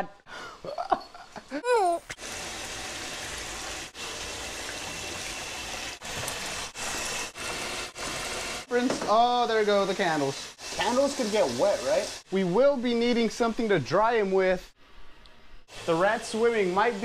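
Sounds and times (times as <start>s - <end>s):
water pouring into bathtub: 1.9s - 12.4s.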